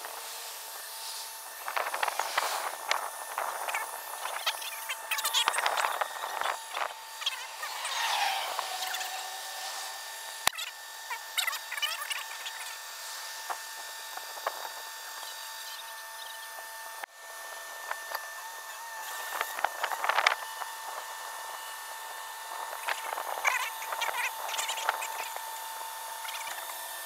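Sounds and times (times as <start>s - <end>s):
winch whining: 1.3s - 16.9s
birds chirping: 15.2s - 16.6s.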